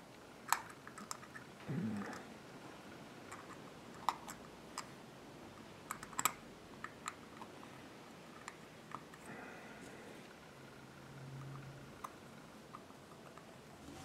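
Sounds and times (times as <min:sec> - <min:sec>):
small metal clicks: 0:05.9 - 0:07.5.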